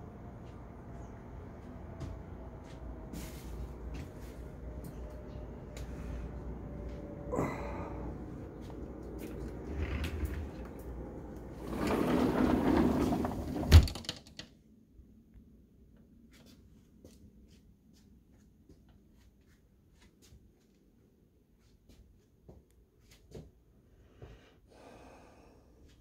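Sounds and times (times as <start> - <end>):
sliding door rumbling on track: 8.6 - 14.1.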